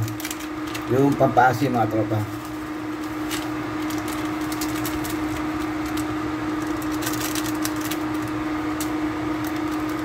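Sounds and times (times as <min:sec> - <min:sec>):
foil sachet crinkling: 0:00.0 - 0:10.0
steady electrical hum: 0:00.0 - 0:10.0.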